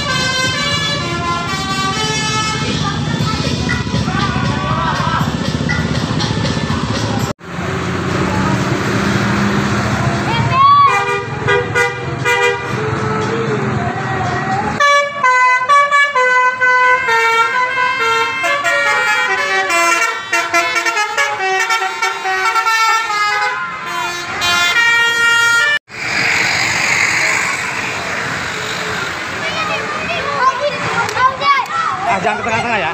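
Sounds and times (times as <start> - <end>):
multi-tone musical air horn: 0.0 - 3.1, 10.9 - 12.9, 14.8 - 25.8
traffic noise: 0.0 - 32.9.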